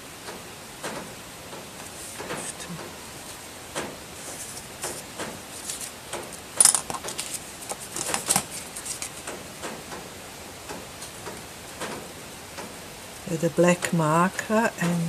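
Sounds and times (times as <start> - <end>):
paper rustling: 1.8 - 3.4, 4.1 - 9.4.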